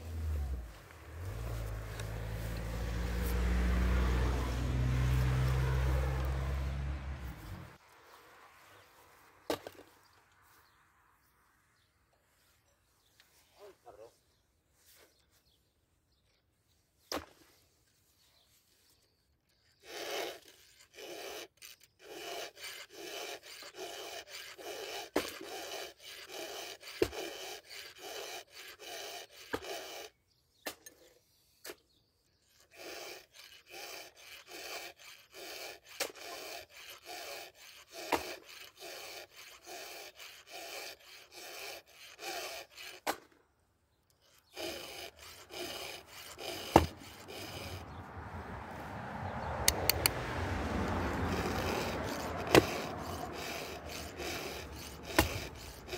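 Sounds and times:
file rasping on chainsaw chain: 0:00.0 - 0:07.6, 0:19.5 - 0:31.0, 0:31.7 - 0:43.3, 0:44.1 - 0:48.3, 0:49.6 - 0:55.9.

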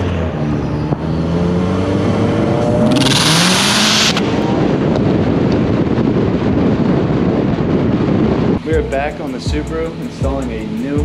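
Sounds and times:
car engine accelerating: 0:00.0 - 0:06.6
road and wind rumble: 0:00.0 - 0:11.0.

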